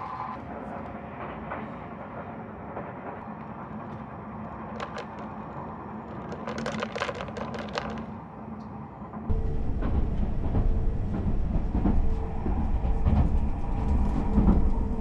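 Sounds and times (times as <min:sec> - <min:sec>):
train cabin rumble and hum: 0:00.0 - 0:15.0
plastic cup clicking and crackling: 0:04.6 - 0:08.1.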